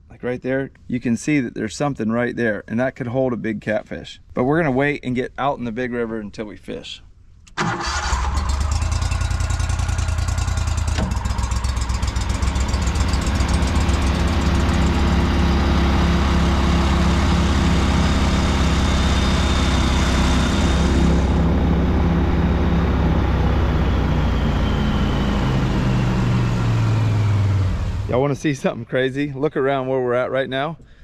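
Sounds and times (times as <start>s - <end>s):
boat engine drone: 7.6s - 28.4s.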